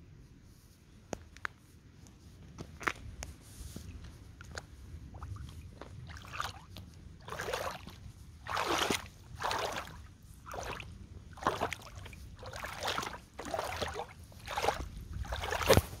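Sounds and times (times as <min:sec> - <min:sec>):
boots wading through puddle: 0:04.3 - 0:16.0.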